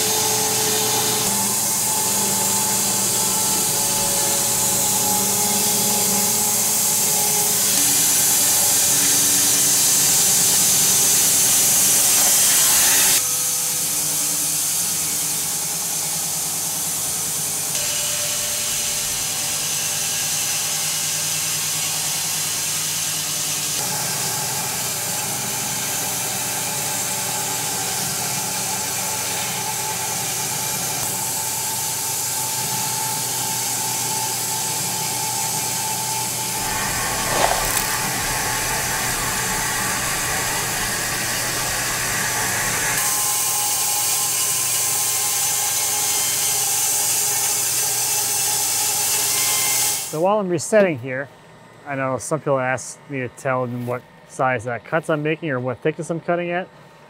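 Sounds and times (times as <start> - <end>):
bandsaw cutting through log: 0.0 - 35.2, 35.8 - 50.2
sawmill machine hum: 0.0 - 50.1.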